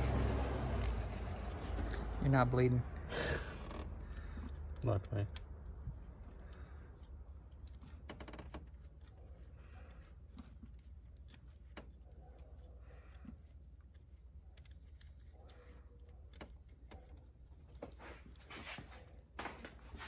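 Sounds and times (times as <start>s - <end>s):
small metal clicks and ticks: 3.7s - 19.4s.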